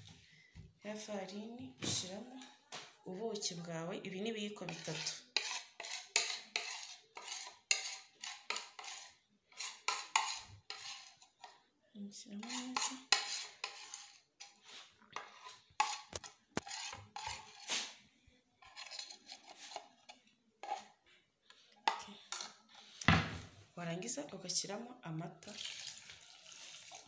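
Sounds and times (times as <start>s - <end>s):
metal spoons scraping and clinking: 4.6s - 11.6s, 12.3s - 17.9s, 18.6s - 21.0s.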